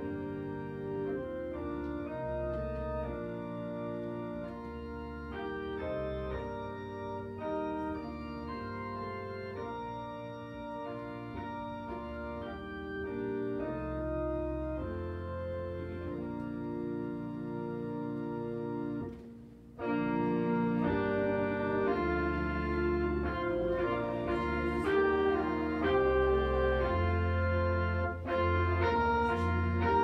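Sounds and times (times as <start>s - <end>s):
organ playing hymn chords: 0.0s - 30.0s.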